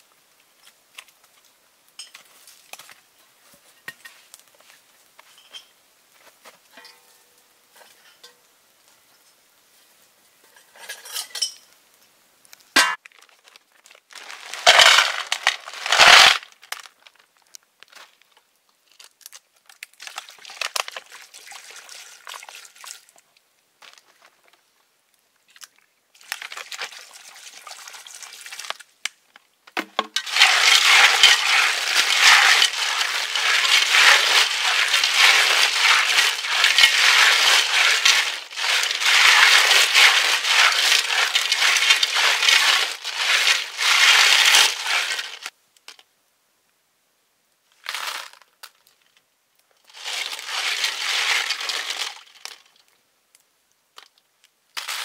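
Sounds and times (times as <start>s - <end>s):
pan clattering: 14.3s - 16.4s, 30.2s - 45.5s
light scraping: 30.2s - 45.5s.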